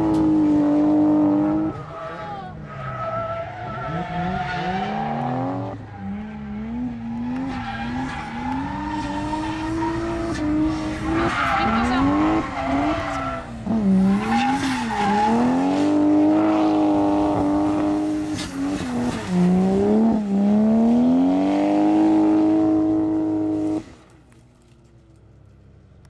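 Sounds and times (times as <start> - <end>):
car engine revving hard: 3.9 - 23.8
tyres squealing: 7.4 - 15.6.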